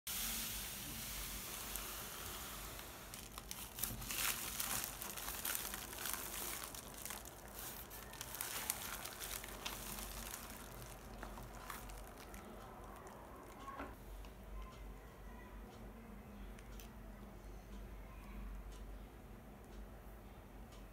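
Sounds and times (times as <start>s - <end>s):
packaging crinkling and rustling: 1.5s - 13.8s.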